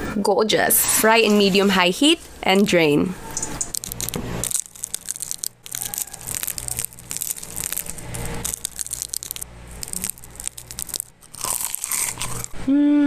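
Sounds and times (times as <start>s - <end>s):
crispy wrapper crackling: 3.3s - 12.6s.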